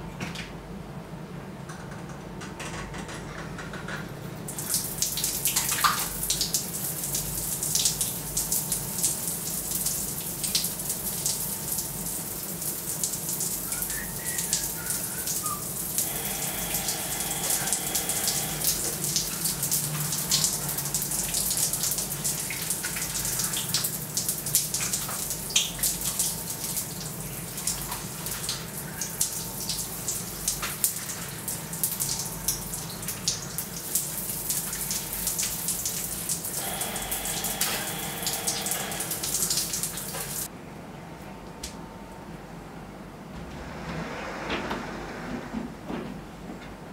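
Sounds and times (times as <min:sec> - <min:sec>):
shower spray on tiled floor: 0:04.5 - 0:40.5.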